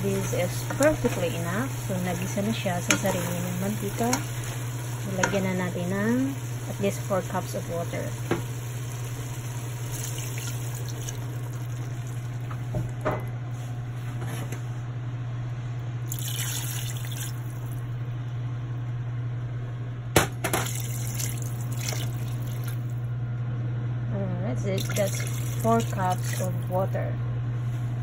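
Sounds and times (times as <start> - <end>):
steady low hum: 0.0 - 28.0
water pouring into a pot: 6.1 - 12.4, 16.1 - 17.6, 20.6 - 22.9, 24.8 - 26.8.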